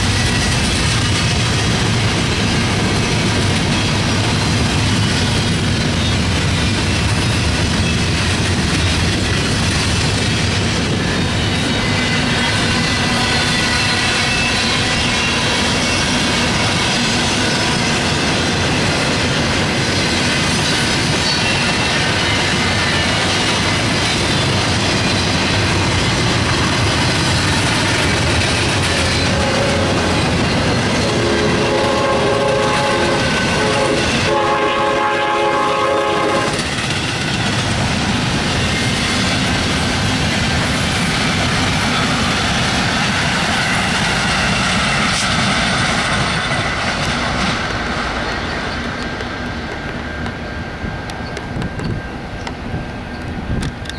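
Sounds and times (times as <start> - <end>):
train wheel and rail noise: 0.0 - 53.9
locomotive air horn: 29.1 - 30.3, 31.0 - 36.6.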